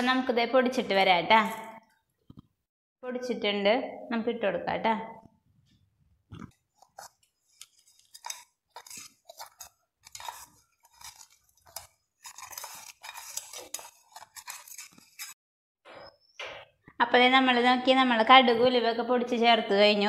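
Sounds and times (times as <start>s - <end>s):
spatula scraping a pan: 6.8s - 15.4s.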